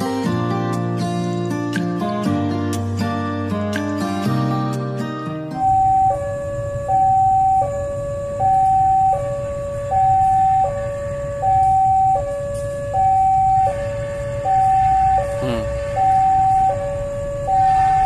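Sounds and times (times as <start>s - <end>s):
two-tone crossing alarm: 5.5s - 18.0s.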